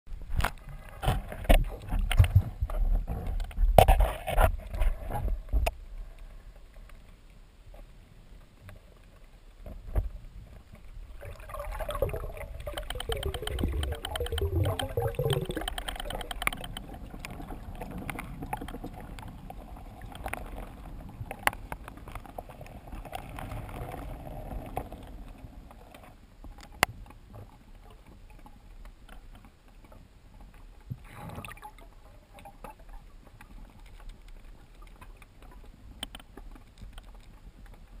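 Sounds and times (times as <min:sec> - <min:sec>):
low underwater rumble: 0:09.6 - 0:25.9
water rushing: 0:11.0 - 0:21.5
sharp clicks and knocks: 0:12.0 - 0:17.4.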